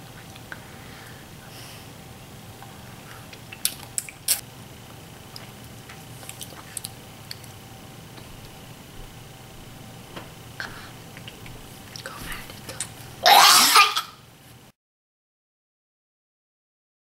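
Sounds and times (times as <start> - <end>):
faint steady hum: 0.0 - 14.7
wet mouth smacks and squelches: 3.3 - 4.4, 6.2 - 7.6.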